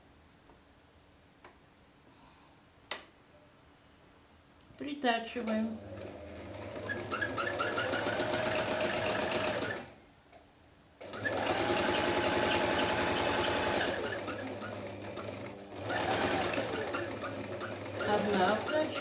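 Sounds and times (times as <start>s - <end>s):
sewing machine stitching: 5.5s - 9.9s, 11.0s - 19.0s.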